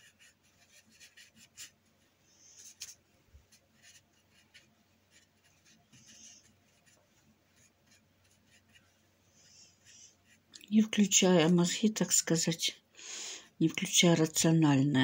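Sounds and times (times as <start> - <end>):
paintbrush strokes on canvas: 0.0 - 11.7.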